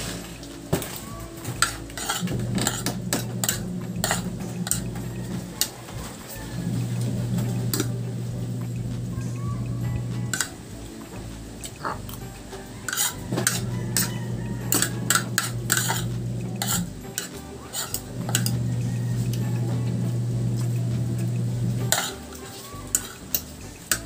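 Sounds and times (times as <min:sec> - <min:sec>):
cutlery clinking on ceramic plate: 0:01.6 - 0:05.8, 0:10.1 - 0:18.6, 0:21.8 - 0:24.0
steady low hum: 0:01.6 - 0:22.4.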